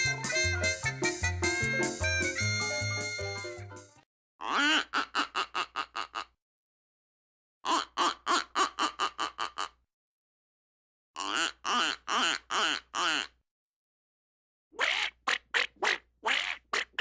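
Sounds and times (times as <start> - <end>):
duck quacking: 4.4 - 6.4, 7.6 - 9.8, 11.2 - 13.4, 14.8 - 17.0.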